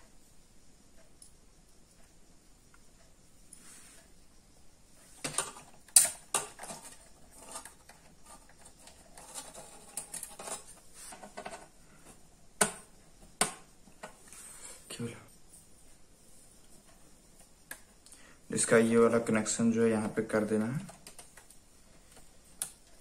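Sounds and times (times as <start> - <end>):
scraping and handling: 5.0 - 14.8.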